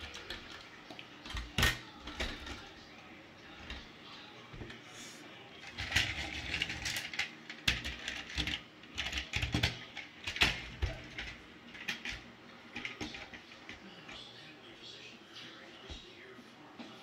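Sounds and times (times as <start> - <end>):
plastic toy cars rolling and rattling: 0.0 - 2.8, 3.5 - 3.9, 5.6 - 14.2.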